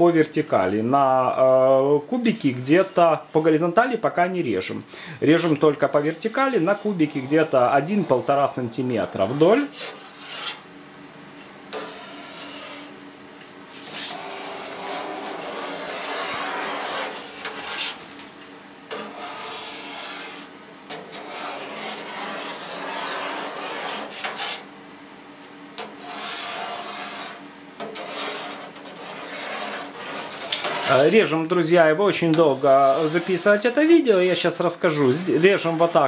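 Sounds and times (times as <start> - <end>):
knife blade scraping steel pan: 9.2 - 10.6, 11.7 - 12.9, 13.8 - 18.0, 18.9 - 24.7, 25.8 - 31.2.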